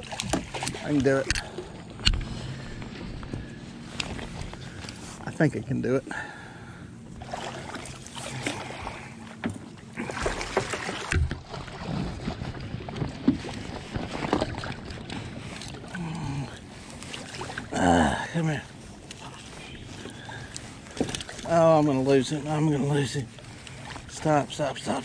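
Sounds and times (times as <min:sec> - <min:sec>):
fish splashing in water: 0:07.2 - 0:09.1, 0:09.9 - 0:12.2
knocks on boat: 0:09.4 - 0:14.7.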